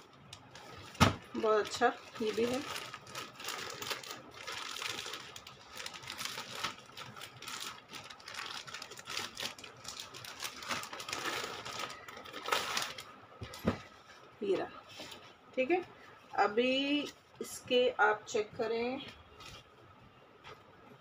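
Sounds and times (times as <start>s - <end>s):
plastic packaging crinkling: 0.0s - 15.2s.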